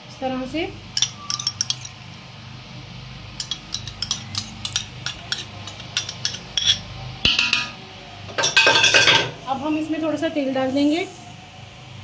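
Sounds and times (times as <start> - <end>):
steady low hum: 0.0 - 12.0
spoon clicking on glass bowl: 1.0 - 2.0, 3.4 - 7.7.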